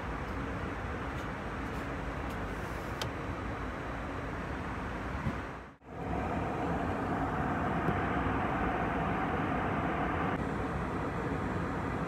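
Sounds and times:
faint steady hum: 0.0 - 12.0
airliner cabin noise: 5.0 - 12.0.

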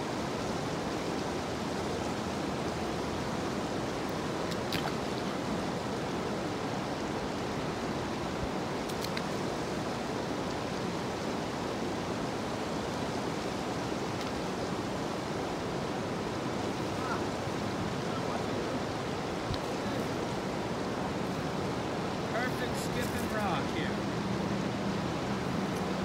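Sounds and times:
steady rushing noise: 14.6 - 26.0.

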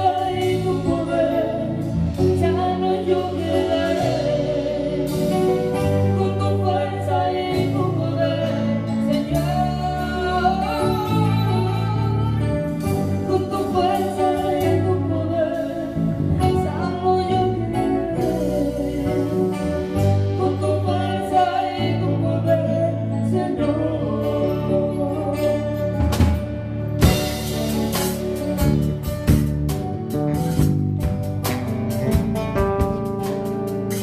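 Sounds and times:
woman singing into microphone: 0.0 - 26.3
acoustic guitar: 0.0 - 34.0
bass guitar: 0.0 - 34.0
drum kit: 0.0 - 34.0.

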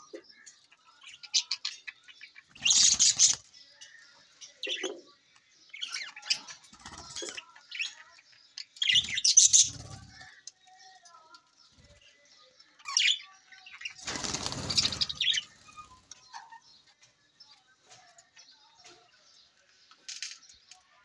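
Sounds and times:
budgerigars chirping and chattering: 0.0 - 20.6
wing flutters: 14.0 - 16.0.

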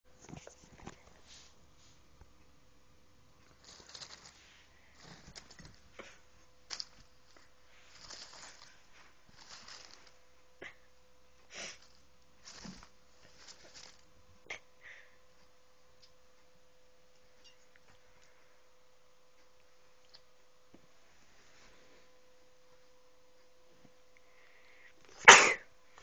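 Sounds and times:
faint steady hum: 0.0 - 26.0
kitten rustling in crinkly tube: 3.4 - 10.3, 11.5 - 14.2.

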